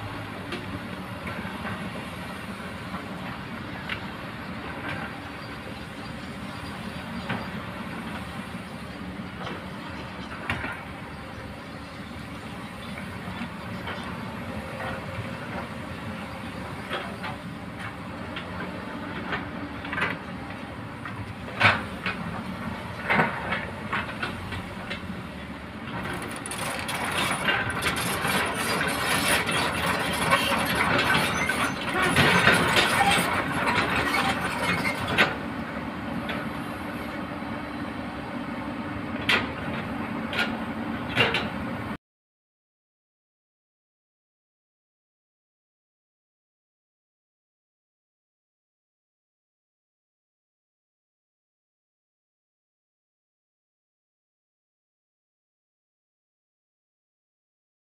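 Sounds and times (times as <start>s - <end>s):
diesel engine rumble: 0.0s - 42.0s
rock and gravel clattering: 26.0s - 35.1s.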